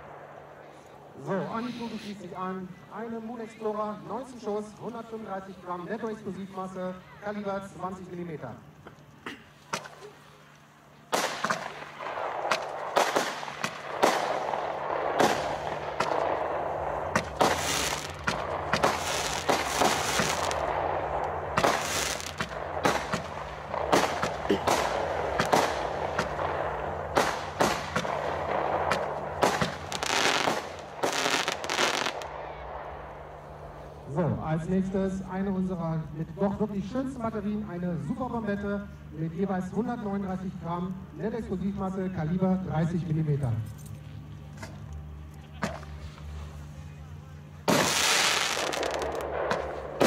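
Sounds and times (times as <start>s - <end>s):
hissing crackle: 8.7s - 37.1s, 47.6s - 50.0s
firework bangs: 11.1s - 34.1s, 47.6s - 50.0s.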